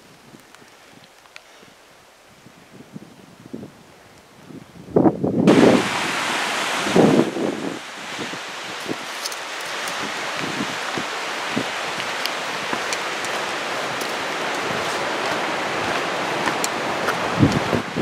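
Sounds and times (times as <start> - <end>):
faint ticks: 0.4 - 1.5
rushing water: 5.4 - 18.0.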